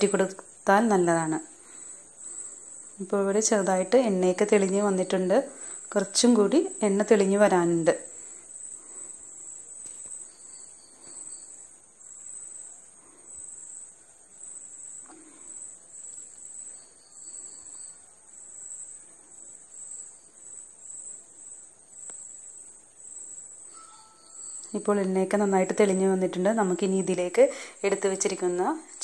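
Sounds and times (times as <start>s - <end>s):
cricket chirping: 0.0s - 29.0s.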